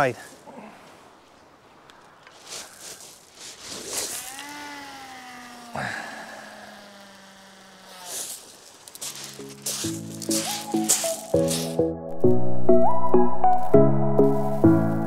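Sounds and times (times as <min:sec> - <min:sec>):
fishing reel spool whining: 0:03.9 - 0:11.3
music: 0:09.4 - 0:15.0.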